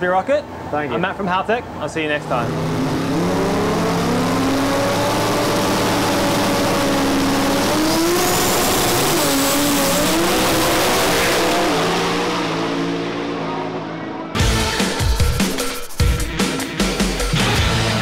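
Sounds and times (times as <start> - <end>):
drag racing engine roar: 1.6 - 14.5.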